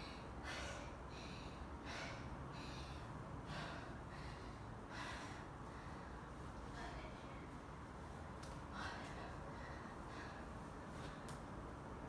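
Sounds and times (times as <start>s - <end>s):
person breathing: 0.0s - 6.4s, 8.6s - 11.4s.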